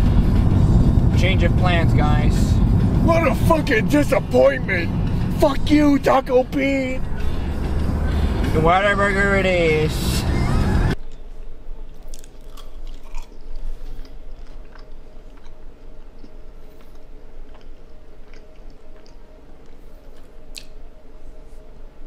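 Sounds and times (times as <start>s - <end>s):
faint steady hum: 0.0s - 22.0s
person chewing food: 12.0s - 20.8s
mouth clicks: 20.5s - 20.8s.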